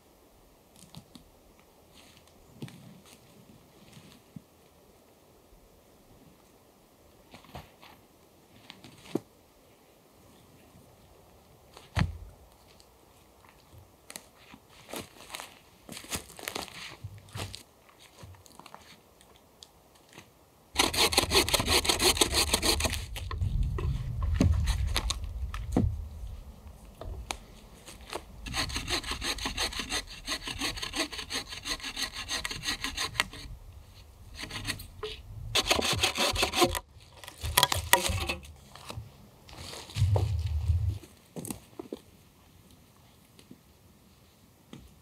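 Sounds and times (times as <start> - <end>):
hand saw cutting log: 20.8 - 23.3, 28.4 - 33.5, 34.3 - 36.8, 37.5 - 38.5.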